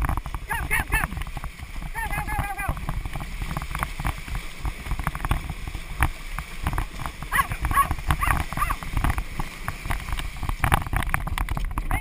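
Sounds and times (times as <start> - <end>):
water churning: 0.0 - 12.0
wind on microphone: 0.0 - 12.0
sharp clicks and knocks: 2.8 - 12.0.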